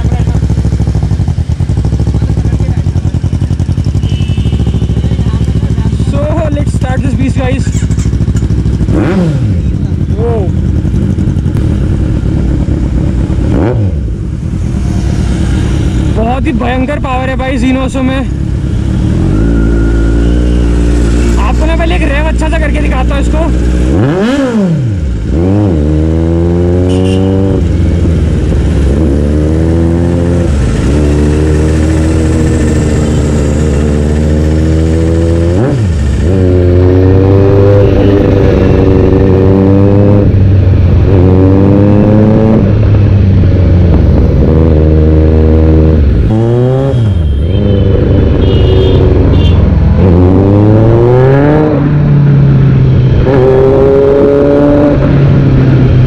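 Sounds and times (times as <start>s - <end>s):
motorcycle engine accelerating hard: 0.0s - 56.0s.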